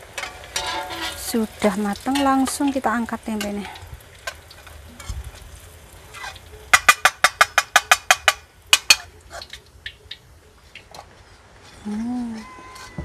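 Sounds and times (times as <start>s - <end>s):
metal skimmer clinking on wok: 0.0s - 4.4s.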